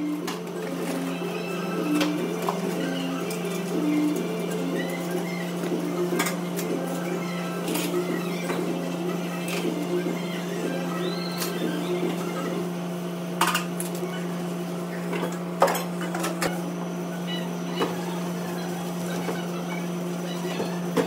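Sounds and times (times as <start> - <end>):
dishes and utensils clinking: 13.4 - 13.9.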